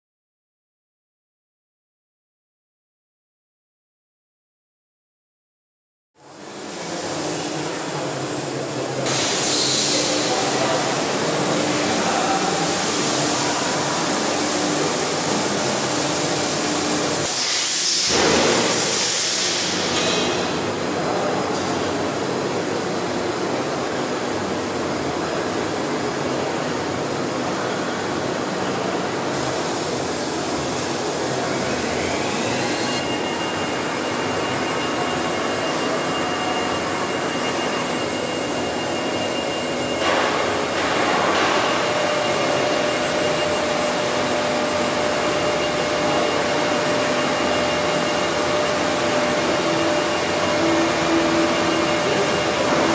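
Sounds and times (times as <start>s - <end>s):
machine whine: 6.2s - 21.4s, 29.3s - 52.9s
drilling machine rushing noise: 29.4s - 33.1s.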